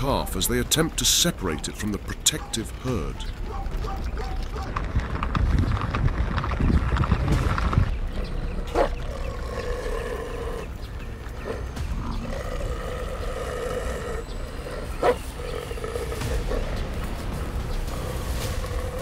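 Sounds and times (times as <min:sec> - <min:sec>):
wild animal roars: 0:08.2 - 0:19.0.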